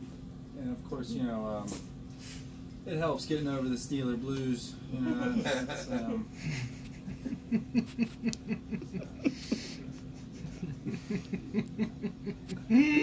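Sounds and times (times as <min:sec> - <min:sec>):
people chuckling softly: 0:05.1 - 0:13.0.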